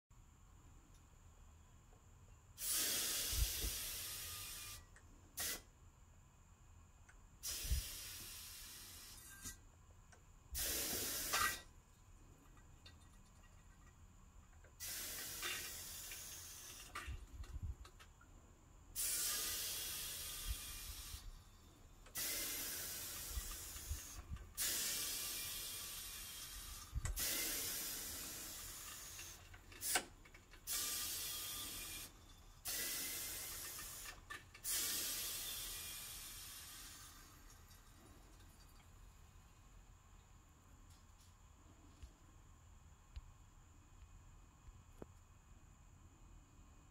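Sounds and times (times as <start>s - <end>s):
compressed air hissing: 2.6s - 5.7s, 7.4s - 9.6s, 10.5s - 11.7s, 14.7s - 17.8s, 18.9s - 37.4s.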